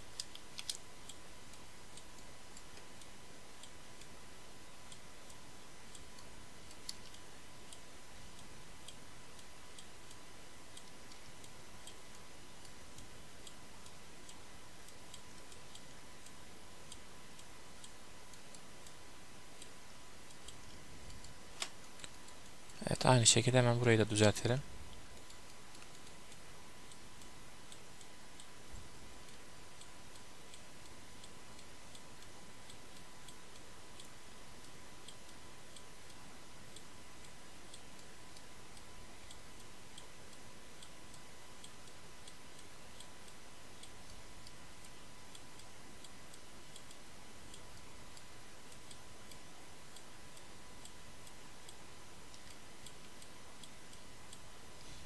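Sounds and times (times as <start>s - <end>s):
computer mouse clicking: 0.0s - 4.2s, 4.9s - 19.0s, 19.6s - 22.8s, 24.9s - 28.6s, 29.2s - 54.5s
faint steady hiss: 0.0s - 55.0s.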